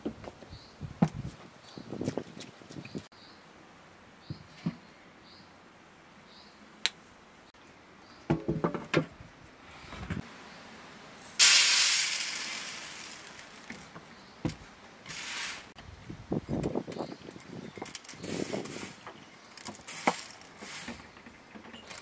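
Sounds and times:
dried peas rattling on metal tray: 11.4 - 13.9, 15.1 - 15.7, 17.9 - 21.2.

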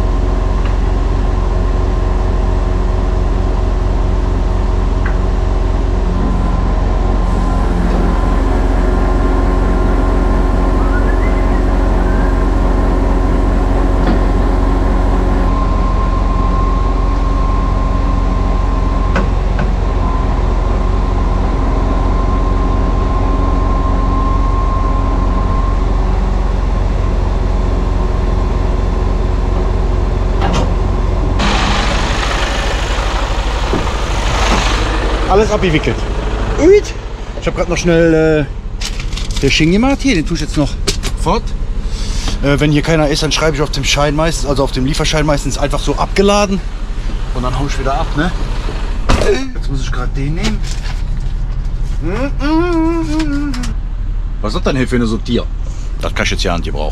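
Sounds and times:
hydraulic whine: 0.0 - 54.4
diesel truck engine running: 0.0 - 56.9
crane knocks: 29.4 - 37.8
rough rushing noise: 31.2 - 37.4.

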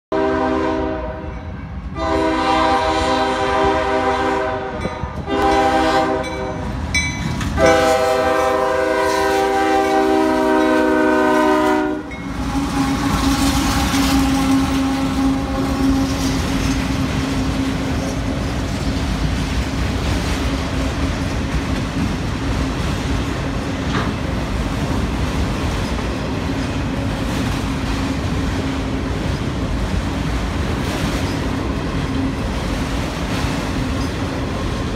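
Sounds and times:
locomotive air horn blasts: 0.1 - 6.7, 7.6 - 16.5
freight train rumbling: 0.1 - 34.9.

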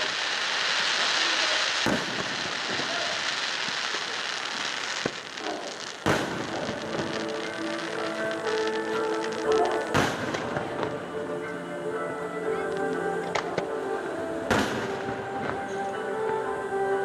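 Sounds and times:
fireworks hissing crackle: 0.0 - 17.0
firework shell bursts: 1.0 - 10.6, 14.5 - 15.6.

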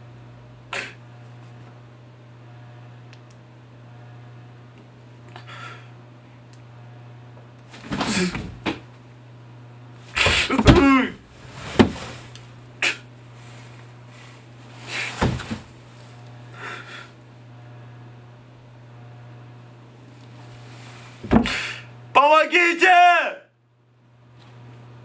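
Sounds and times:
steady low hum: 0.0 - 22.2
man breathing hard: 5.4 - 6.0, 16.5 - 17.2
man groaning: 10.3 - 11.2.

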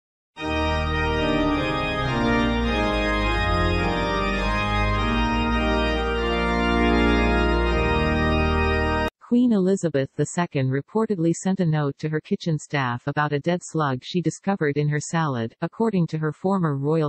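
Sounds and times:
intro music with held chords: 0.4 - 9.1.

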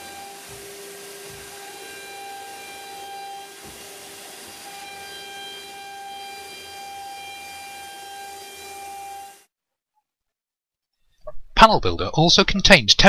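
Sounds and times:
router spindle whine: 0.0 - 9.5.

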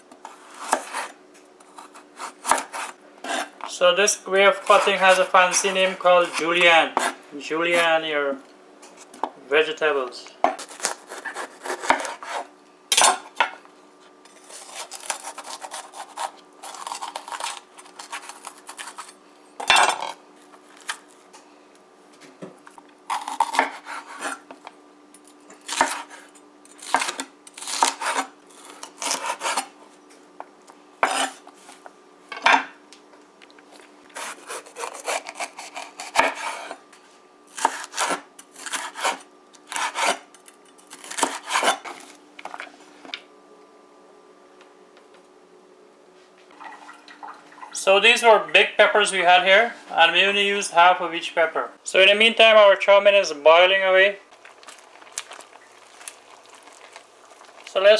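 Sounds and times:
faint steady hum: 0.0 - 57.9
knife slicing on wooden board: 10.6 - 12.5, 31.0 - 31.4, 41.0 - 42.0.

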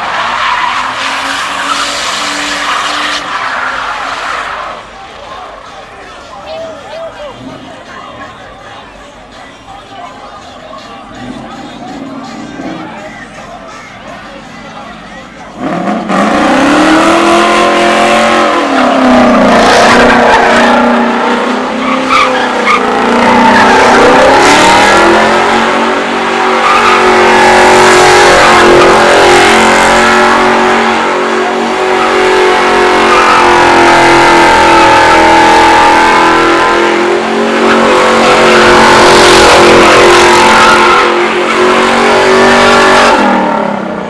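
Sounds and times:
tyres screeching on pavement: 0.0 - 43.1
car engine revving high: 15.6 - 44.0.

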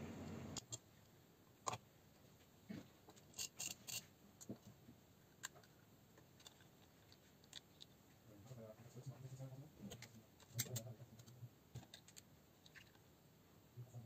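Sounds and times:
small parts and tools clicking: 0.6 - 0.8, 3.1 - 4.7, 5.3 - 8.0, 9.9 - 13.0.

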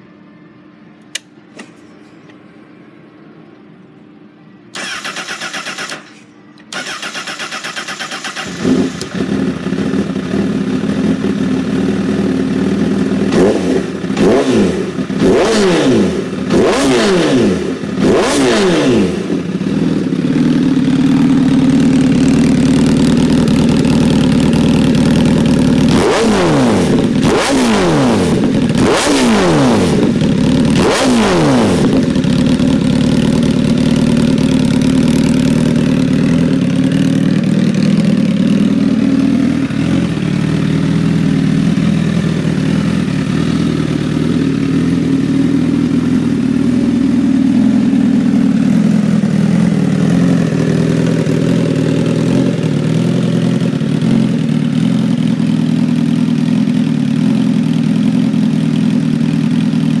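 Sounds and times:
motorcycle engine blipping and idling: 4.8 - 60.0.

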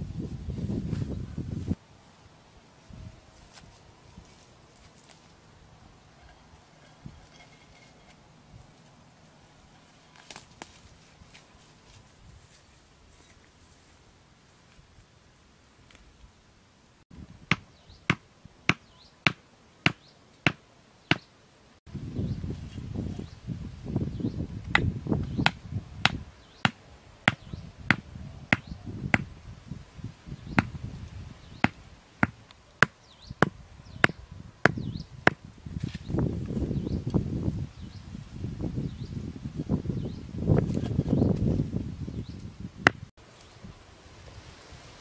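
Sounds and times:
stakes hammered into ground: 17.5 - 21.3.

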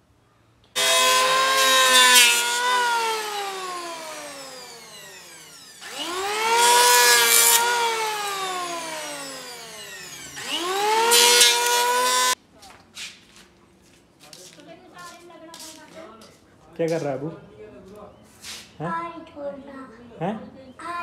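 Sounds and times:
electric planer motor whine: 0.8 - 12.4
planer blades hissing across wood: 0.8 - 12.4.

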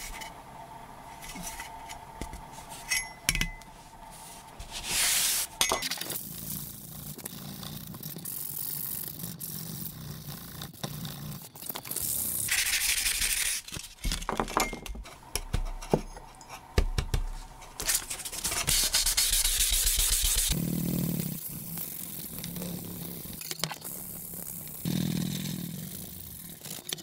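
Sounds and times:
sandpaper rubbing on saw blade: 18.2 - 20.6.

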